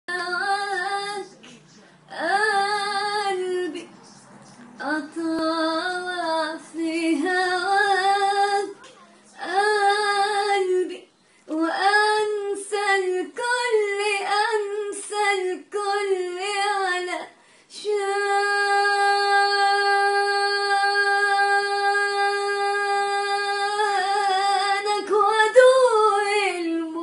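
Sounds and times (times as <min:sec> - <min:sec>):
woman singing unaccompanied: 0:00.1 - 0:01.4, 0:02.1 - 0:03.9, 0:04.8 - 0:27.0.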